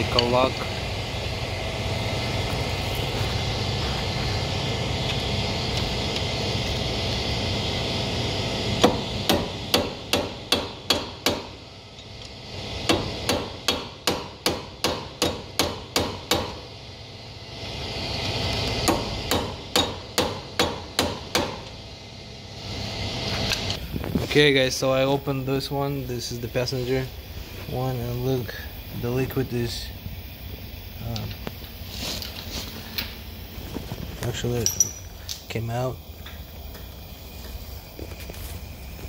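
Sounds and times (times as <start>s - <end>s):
steady background hum: 0.0s - 39.0s
hammer striking metal punch: 8.8s - 11.6s, 12.8s - 16.6s, 18.8s - 21.7s.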